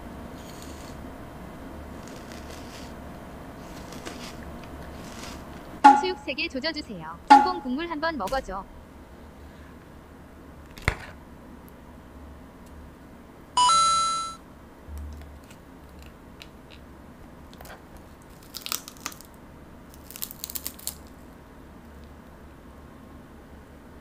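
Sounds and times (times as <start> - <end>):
crunchy food being chewed: 0.4 - 1.0, 1.9 - 3.0, 3.6 - 5.7, 17.6 - 21.3
brief electronic tone: 13.6 - 14.4.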